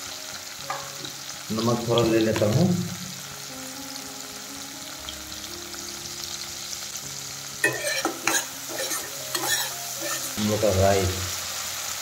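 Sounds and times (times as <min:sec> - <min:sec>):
vegetables sizzling in oil: 0:00.0 - 0:12.0
utensil clattering against pan: 0:07.6 - 0:10.4.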